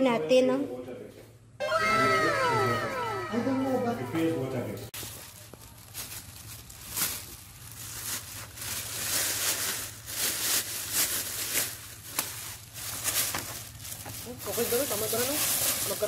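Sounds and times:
plastic bag crinkling: 5.0 - 16.0.

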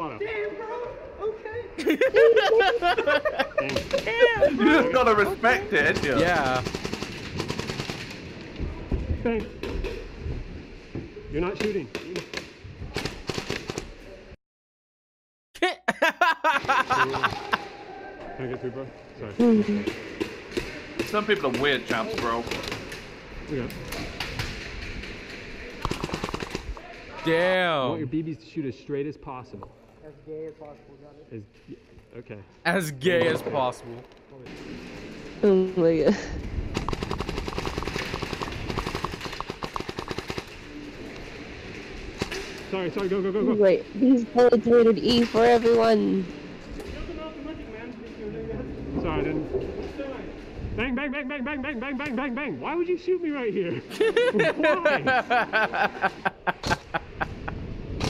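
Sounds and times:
airsoft guns popping: 25.8 - 26.8, 36.7 - 40.6.

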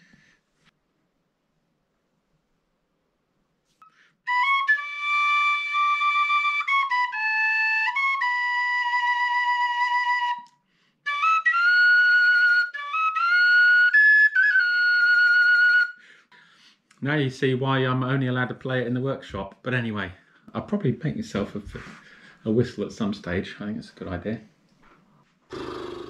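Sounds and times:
penny whistle tune: 3.8 - 16.0.

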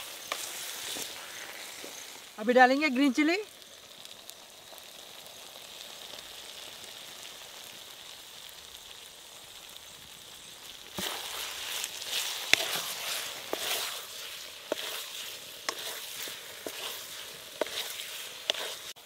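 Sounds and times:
chicken sizzling in pan: 0.0 - 19.0
spatula scraping pan: 11.0 - 19.0.

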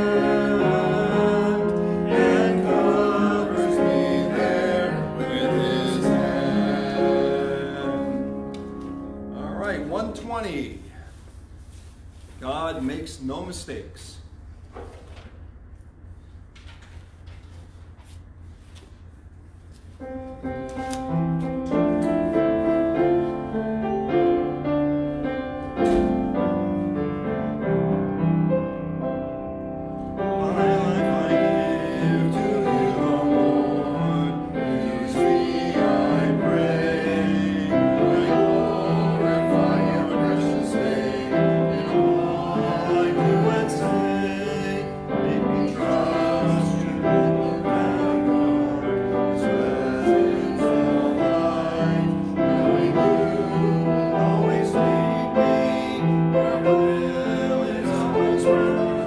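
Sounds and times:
hymn played on keyboard: 0.0 - 13.5, 19.9 - 59.0.

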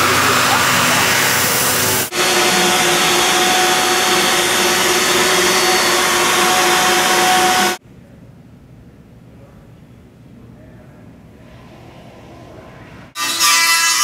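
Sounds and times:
router spindle cutting foam: 0.0 - 7.8.

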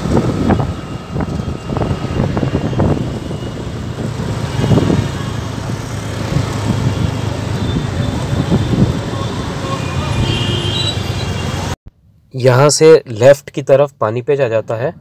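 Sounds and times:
motorcycle and rickshaw engines: 0.0 - 11.8.

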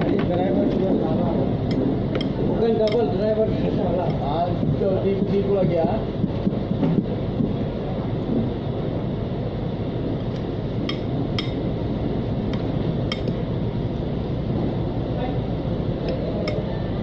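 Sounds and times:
low rumbling background noise: 0.0 - 17.0.

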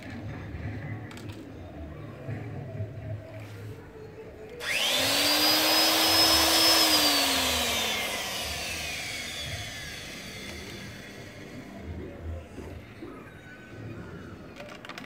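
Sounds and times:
electric blower motor whine: 4.6 - 12.0.

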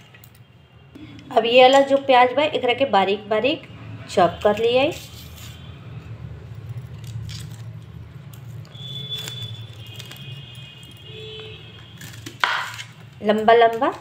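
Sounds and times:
onion skin crackling: 6.7 - 10.8, 11.6 - 14.0.

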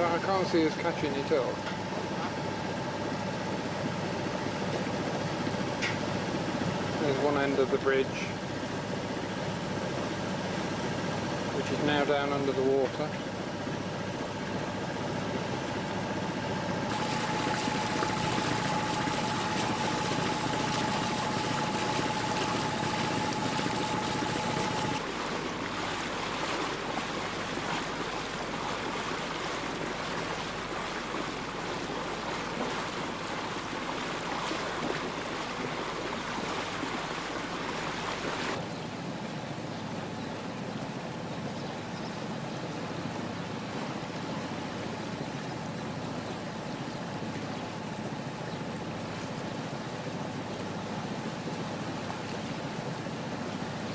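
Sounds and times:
boat engine running: 0.0 - 53.9
water and wind rushing: 0.0 - 53.9
thin whine: 16.7 - 30.1.

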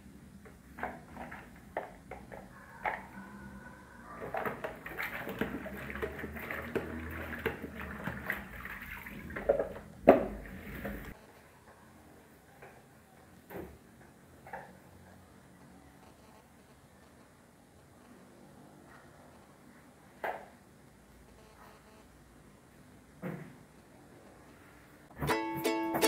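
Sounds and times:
spin mop swishing water: 4.2 - 11.2
mop knocking: 4.3 - 11.1.

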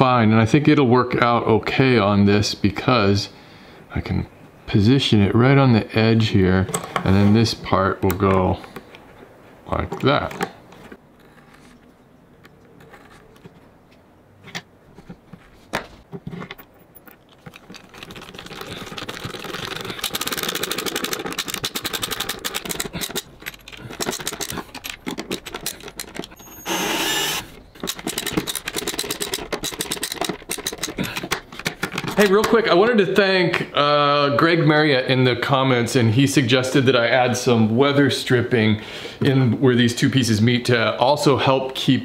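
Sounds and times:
rapid clicks and scrapes of screws: 17.0 - 32.2.

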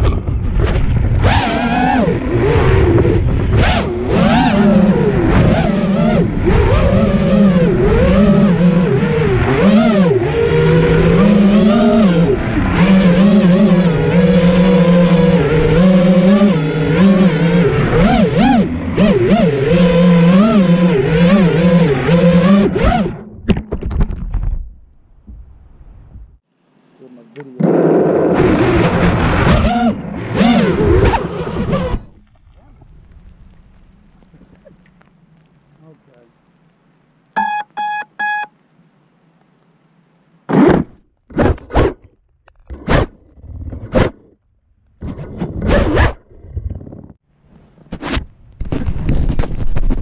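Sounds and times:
drone motors whining: 0.1 - 23.4, 37.4 - 38.5.

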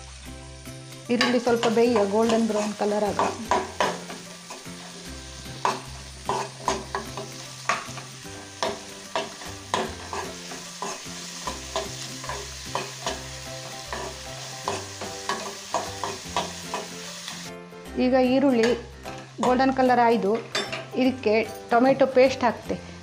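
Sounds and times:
onions sizzling in a pan: 0.0 - 22.9
metal ladle scraping a pan: 5.6 - 16.9.

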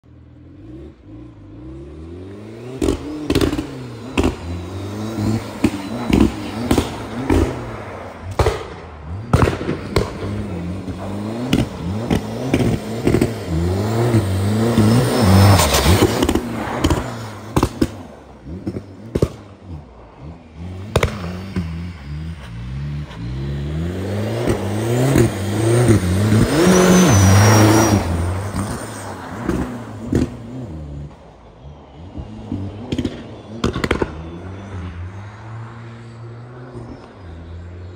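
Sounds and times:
diesel car revving: 0.0 - 37.9
exhaust pops and bangs: 2.8 - 4.5, 5.5 - 7.7, 8.3 - 13.4, 14.7 - 19.6, 20.9 - 21.7, 29.4 - 30.4, 32.8 - 34.2.

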